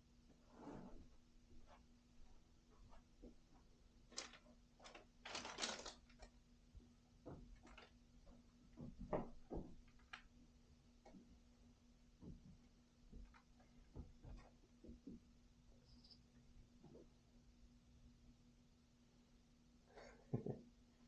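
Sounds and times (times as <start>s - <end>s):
faint steady hum: 0.0s - 21.0s
soft taps and rustles: 12.2s - 15.3s.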